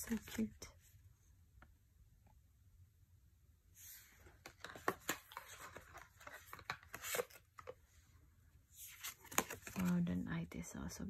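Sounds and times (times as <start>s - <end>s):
papery rustle of cards: 3.9s - 7.8s, 8.8s - 10.1s
cards clicking and sliding: 4.2s - 7.8s, 8.9s - 9.9s.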